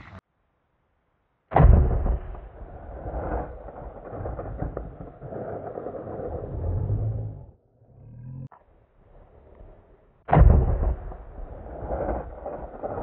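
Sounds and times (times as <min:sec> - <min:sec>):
rifle shot echoing rumble: 0:01.5 - 0:05.6, 0:10.3 - 0:13.0.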